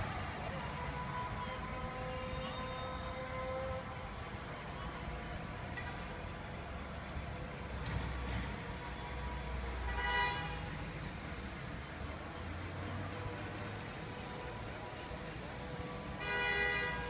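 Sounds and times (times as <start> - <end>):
low rumble of city traffic: 0.0 - 17.0
vehicle horn toot: 1.4 - 3.9, 9.9 - 10.6, 16.2 - 17.0.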